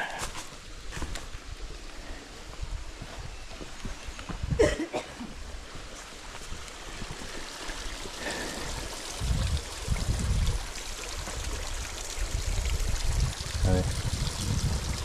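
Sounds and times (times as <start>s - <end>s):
stream trickling over rocks: 5.4s - 15.0s.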